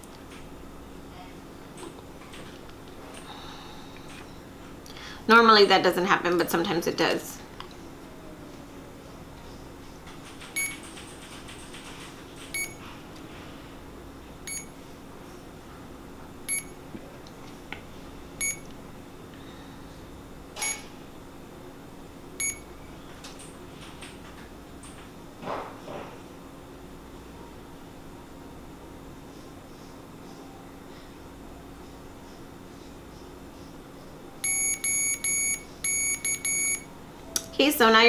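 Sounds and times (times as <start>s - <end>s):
faint steady hum: 0.0s - 38.0s
infusion pump beeping: 10.6s - 10.9s, 12.5s - 12.8s, 14.5s - 14.8s, 16.5s - 16.8s, 18.4s - 18.7s, 20.6s - 20.9s, 22.4s - 22.7s, 34.4s - 36.9s.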